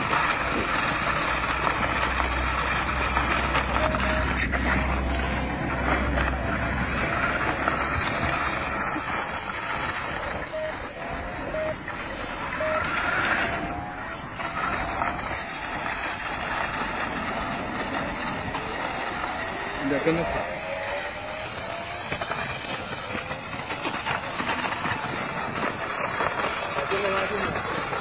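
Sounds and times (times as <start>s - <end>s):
outdoor background noise: 0.0s - 28.0s
short beeps: 3.7s - 4.5s, 10.4s - 13.8s.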